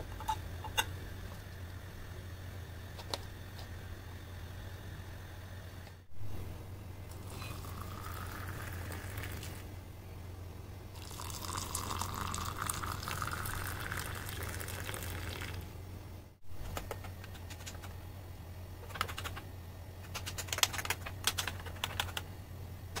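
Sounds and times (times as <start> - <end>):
milk pouring into mug: 7.1 - 9.7, 11.0 - 15.7.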